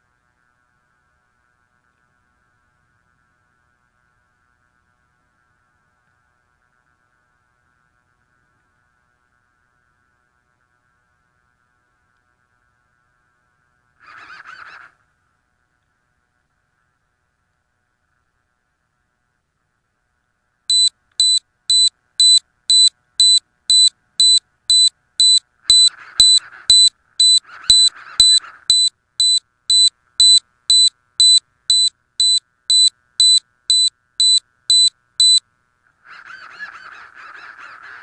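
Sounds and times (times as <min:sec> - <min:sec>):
piezo buzzer beeping: 0:20.7 - 0:35.4.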